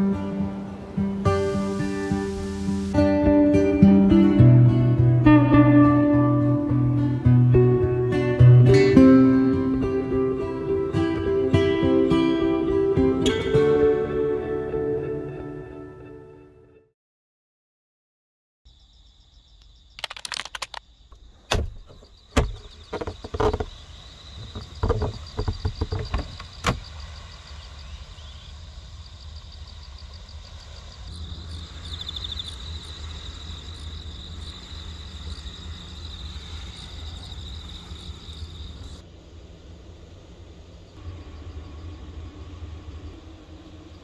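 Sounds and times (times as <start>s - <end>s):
insects chirping: 0.0s - 13.6s, 18.7s - 44.0s
sharp knocks and clatters: 21.5s - 23.8s, 24.4s - 26.8s
low rumble: 38.7s - 44.0s.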